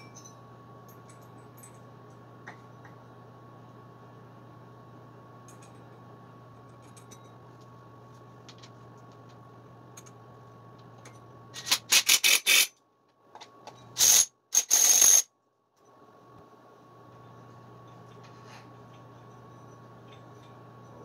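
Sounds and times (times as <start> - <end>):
impact wrench bursts: 11.6 - 12.7, 14.0 - 15.3.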